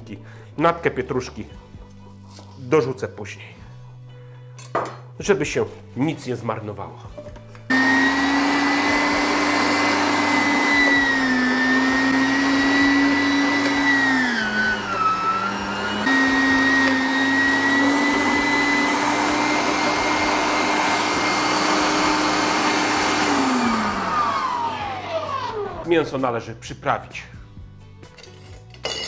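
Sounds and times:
meat grinder motor whining: 7.7 - 25.9.

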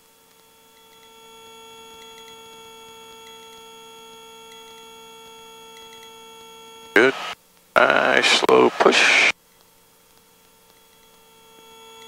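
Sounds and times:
faint ticks: 0.2 - 1.2, 2.0 - 2.6.

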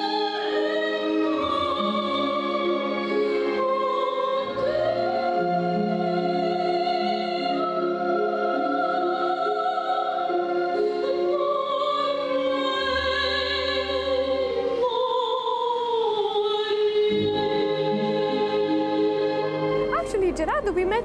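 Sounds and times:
woman singing opera: 0.0 - 21.0
instrumental accompaniment: 17.1 - 21.0.

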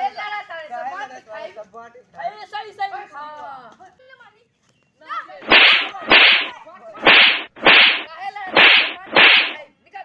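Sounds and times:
cartoon swishing smacks: 5.4 - 9.6.

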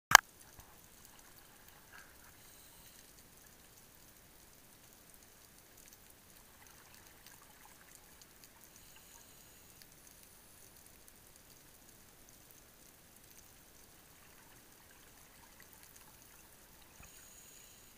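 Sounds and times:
faint clicks and crackles: 0.1 - 17.9
underwater hiss: 1.8 - 3.2, 8.6 - 10.5, 16.9 - 17.9.

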